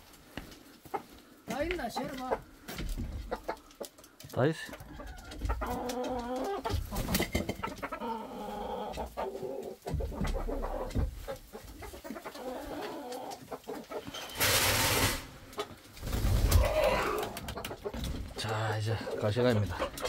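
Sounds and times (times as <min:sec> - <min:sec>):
hens clucking: 0:00.0 - 0:20.0
loud rustling: 0:14.1 - 0:16.8.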